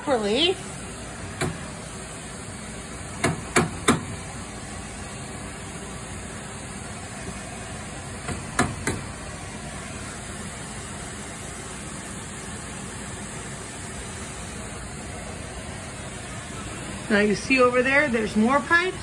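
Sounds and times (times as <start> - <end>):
sharp knocks: 3.2 - 4.1, 8.2 - 9.1.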